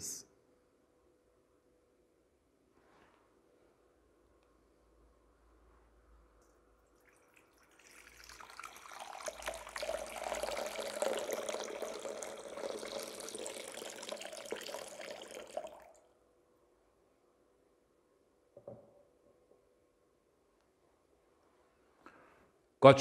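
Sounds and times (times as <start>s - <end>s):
water pouring into bowl: 6.9s - 16.0s.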